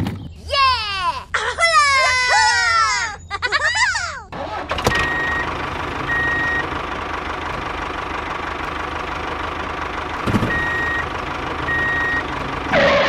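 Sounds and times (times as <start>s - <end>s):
vehicle engine running: 4.3s - 13.0s
reversing alarm beep: 4.9s - 5.5s, 6.1s - 6.7s, 10.5s - 11.1s, 11.7s - 13.0s.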